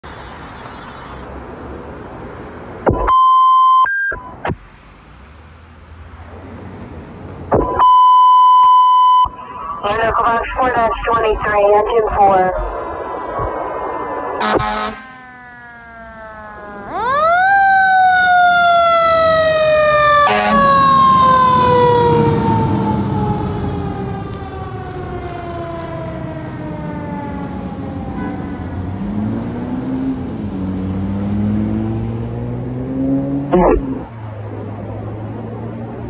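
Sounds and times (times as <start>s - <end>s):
diesel engine passing: 12.4s - 36.0s
mechanical siren wailing: 14.2s - 28.8s.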